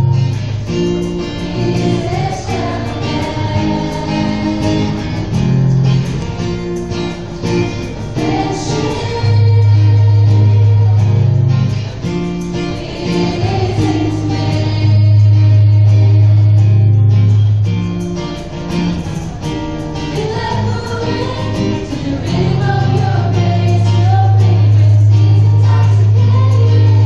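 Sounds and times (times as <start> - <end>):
acoustic guitar: 0.0 - 27.0
women singing together: 1.4 - 5.5, 7.7 - 16.5, 20.1 - 27.0.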